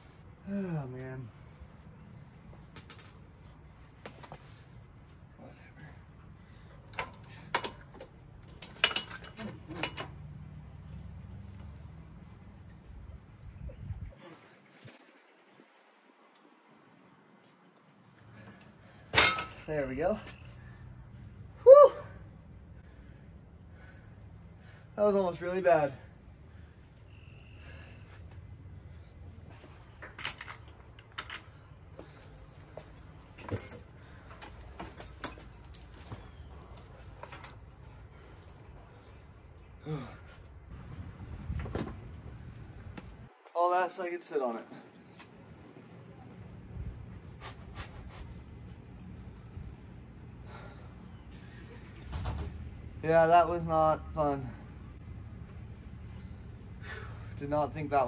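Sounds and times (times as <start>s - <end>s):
clicks and knocks of motorcycle parts: 6.9s - 10.2s, 19.1s - 19.7s
wrench clanking on metal: 8.6s - 10.1s, 19.1s - 19.7s.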